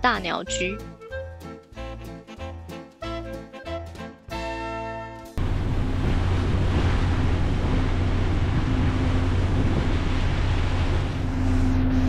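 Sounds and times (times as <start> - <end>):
ferry engine drone: 5.4 - 12.0
water rushing along hull: 5.4 - 12.0
wind on microphone: 5.4 - 12.0.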